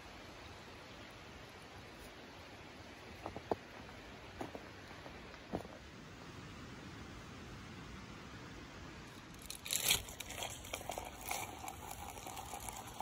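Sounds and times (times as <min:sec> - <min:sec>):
faint steady hiss: 0:00.0 - 0:13.0
crinkling and rustling: 0:09.3 - 0:13.0.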